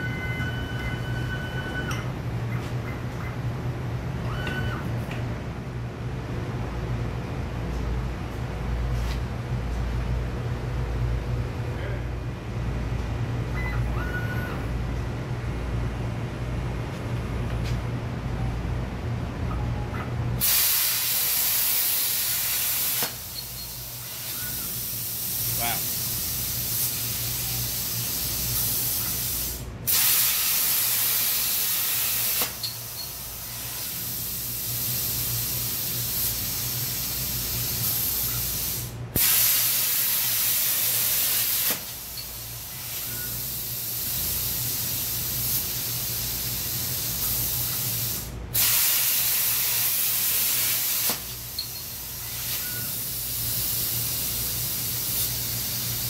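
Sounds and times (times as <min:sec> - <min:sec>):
plasma cutter hissing cuts: 0:20.4 - 0:56.0.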